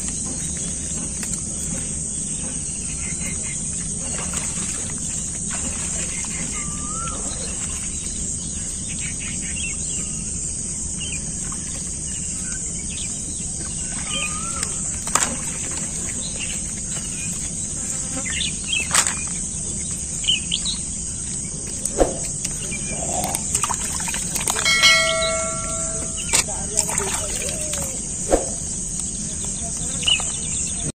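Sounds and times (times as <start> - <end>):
birds chirping: 0.0 - 30.9.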